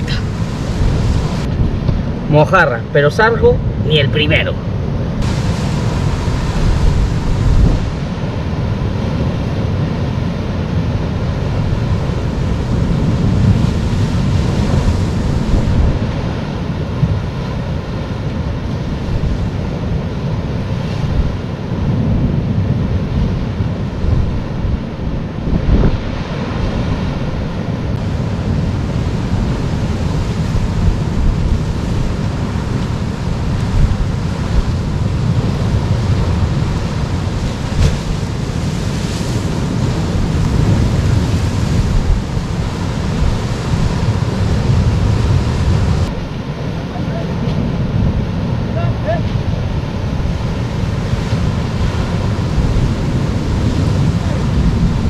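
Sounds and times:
wind buffeting microphone: 0.0 - 2.5, 3.5 - 55.0
surf breaking on rocks: 5.2 - 19.8, 25.6 - 55.0.

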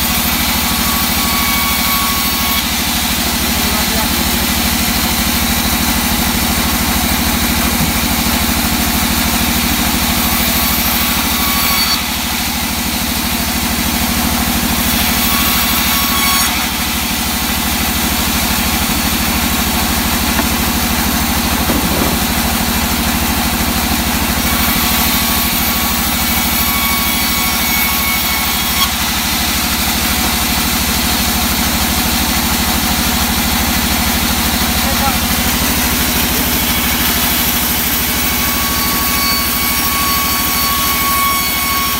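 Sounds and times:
band saw running: 0.0 - 41.9
saw blade cutting wood: 0.0 - 41.9.

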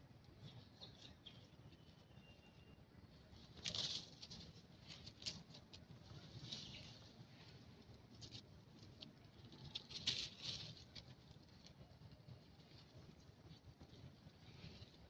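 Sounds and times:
rustles of dry leaf litter: 0.4 - 15.0.

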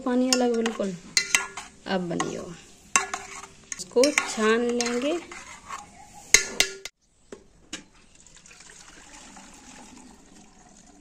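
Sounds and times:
metal clank: 6.3 - 6.9
liquid trickling into bucket: 8.1 - 11.0.

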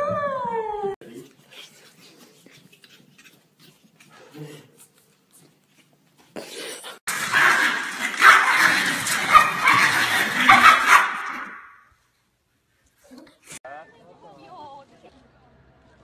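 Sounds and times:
small dogs barking and yapping: 7.1 - 11.8.

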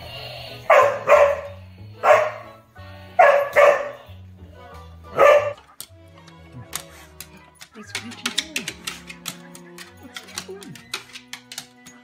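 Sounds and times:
music: 0.0 - 12.0
dog barking: 0.7 - 2.6, 3.2 - 4.1, 5.1 - 5.6.

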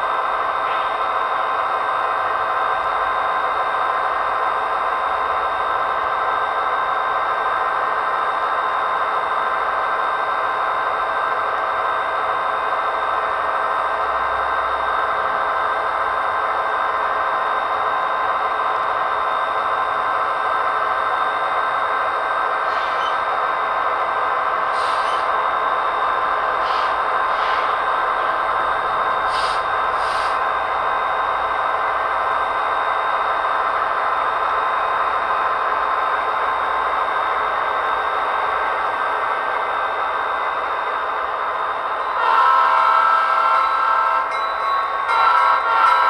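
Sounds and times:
model train motor whine: 39.6 - 46.0.

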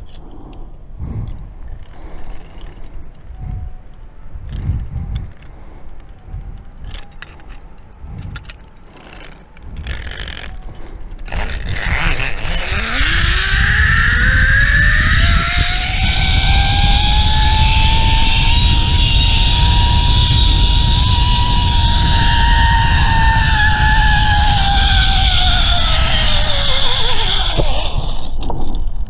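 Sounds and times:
rushing wind: 0.0 - 29.0
gear clicks and knocks: 1.2 - 13.2
zipline pulleys whining on cable: 6.2 - 28.5.

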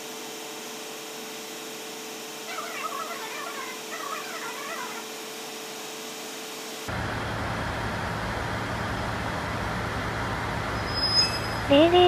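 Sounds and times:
diesel locomotive engine drone: 6.6 - 12.0.

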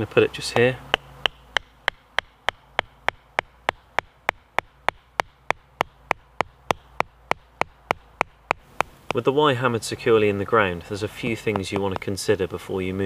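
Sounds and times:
hatchet knocking wooden stake: 0.5 - 9.2, 11.5 - 12.2.

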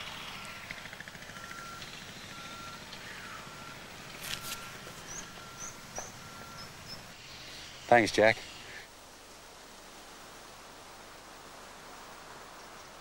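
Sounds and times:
steady outdoor hiss: 0.0 - 13.0
faint electronic beep: 1.3 - 7.0.

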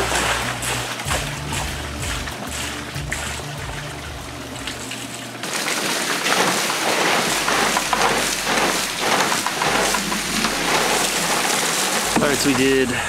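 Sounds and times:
background music: 0.0 - 5.0
water splashing on waterwheel: 0.0 - 13.0.

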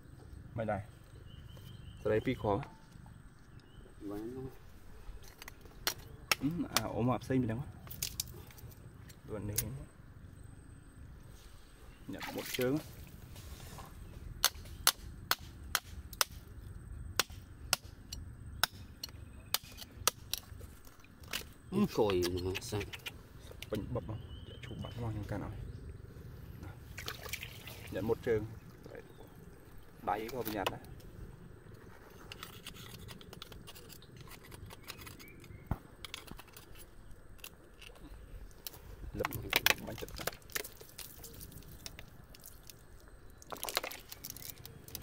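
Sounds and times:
metal rod scraping oyster shells: 31.9 - 38.0.

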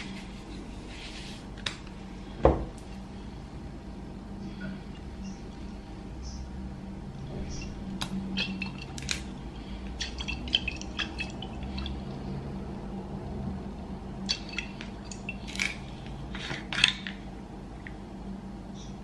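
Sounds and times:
steady low hum: 0.0 - 19.0
liquid pouring: 7.6 - 12.5, 14.2 - 16.0.

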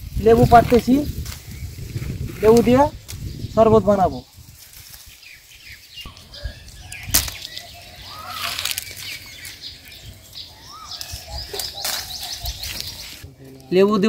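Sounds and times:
leaves and twigs rustling: 0.0 - 14.0
twig snapping: 1.2 - 1.5, 2.5 - 3.3, 6.1 - 9.6, 11.0 - 13.7.

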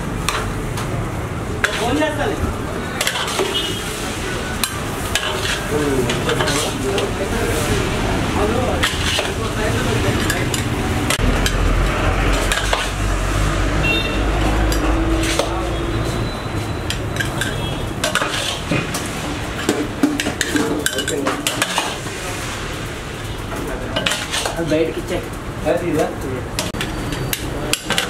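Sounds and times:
noodles sizzling: 0.0 - 28.0
metal spatula scraping wok: 1.6 - 2.2, 2.9 - 22.8, 23.5 - 25.0.

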